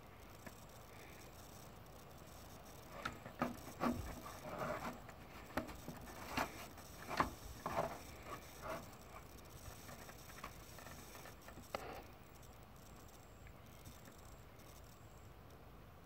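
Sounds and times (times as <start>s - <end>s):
gloved hand tapping and rustling: 2.9s - 11.9s.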